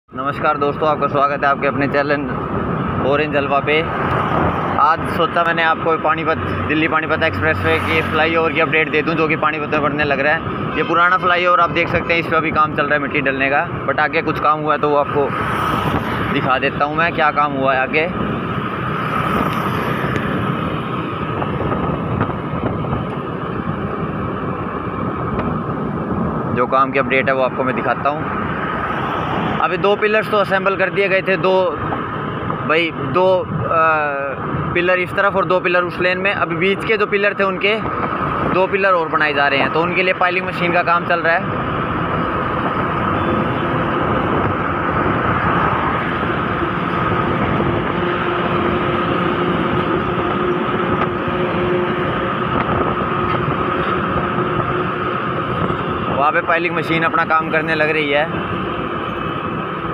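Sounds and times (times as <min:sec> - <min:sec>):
road and wind noise: 0:00.1 - 0:59.9
scooter engine hum: 0:41.4 - 0:59.9.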